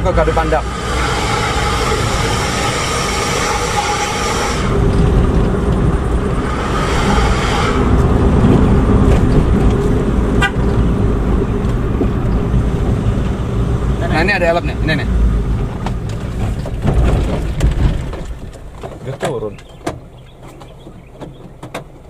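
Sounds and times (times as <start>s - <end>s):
car engine rumble and road noise: 0.0s - 22.0s
vehicle horn blasts: 0.1s - 4.8s, 6.5s - 8.4s, 10.3s - 10.9s.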